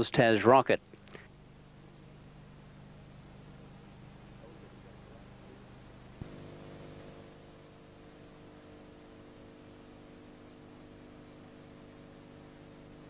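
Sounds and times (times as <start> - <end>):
faint electrical hum: 0.0 - 13.0
hiss: 6.2 - 10.8.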